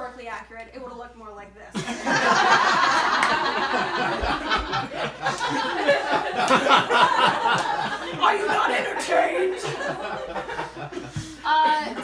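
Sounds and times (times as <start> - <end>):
people talking: 0.0 - 1.8, 3.8 - 10.2, 11.4 - 12.0
audience laughing: 1.8 - 12.0.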